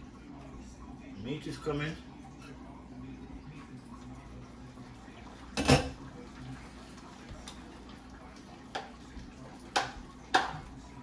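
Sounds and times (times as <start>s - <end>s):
metal pot clanking: 9.7s - 10.7s.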